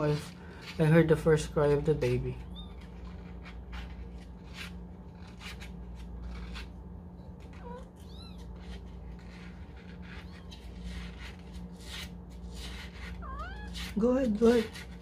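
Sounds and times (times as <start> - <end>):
kitten mewing: 7.4 - 8.8, 13.1 - 14.0.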